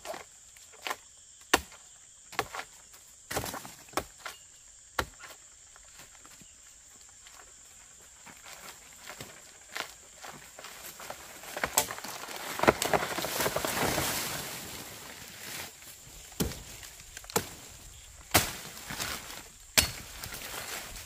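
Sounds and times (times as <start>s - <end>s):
rustling and crackling: 8.1s - 21.0s.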